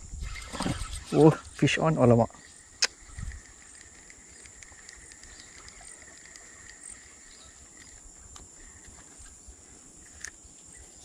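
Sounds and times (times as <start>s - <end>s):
insects chirring: 0.0s - 11.0s
faint clicks: 2.4s - 9.4s.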